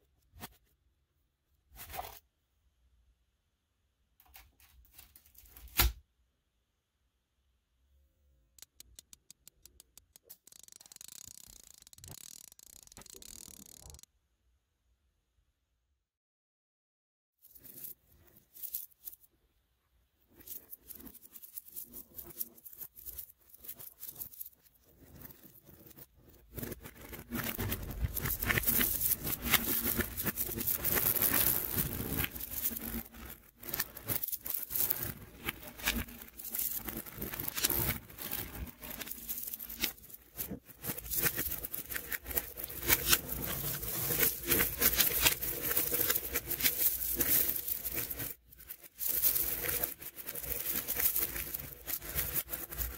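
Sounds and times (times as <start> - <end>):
ball magnets clicking together: 8.6 - 14.0.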